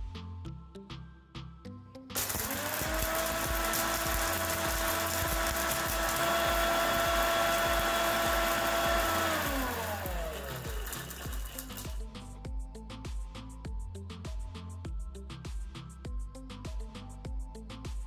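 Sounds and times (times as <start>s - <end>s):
mixer grinder whining: 2.2s - 12.2s.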